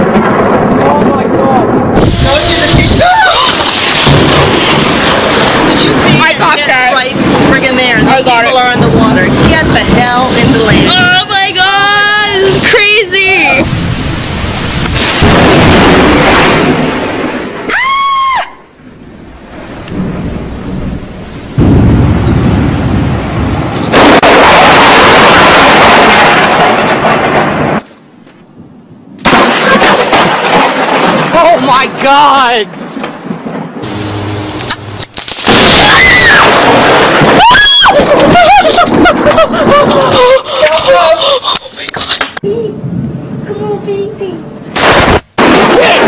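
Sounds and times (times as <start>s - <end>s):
thunder: 0.0s - 12.8s, 13.6s - 27.8s, 29.2s - 31.9s, 32.8s - 34.1s, 35.3s - 40.5s, 42.8s - 43.5s, 44.7s - 46.0s
very loud thunderclap: 0.0s - 17.7s, 18.8s - 27.8s, 29.2s - 34.1s, 35.2s - 41.0s, 42.7s - 43.8s, 44.7s - 46.0s
rain: 0.0s - 27.8s, 29.2s - 34.0s, 34.6s - 46.0s
person screaming: 17.7s - 18.6s, 35.7s - 36.5s, 37.4s - 38.6s
short rising and falling cries: 17.7s - 18.7s.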